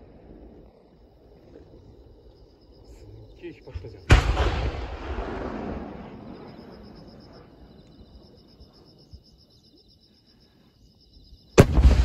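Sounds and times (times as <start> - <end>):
firework rumble: 0.0 - 8.3, 11.6 - 12.0
crickets chirping: 0.0 - 12.0
firework shell boom: 4.1 - 6.0.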